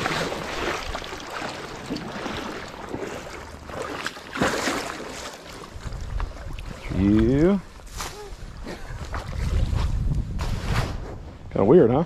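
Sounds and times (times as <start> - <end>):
stream water splashing: 0.0 - 7.5.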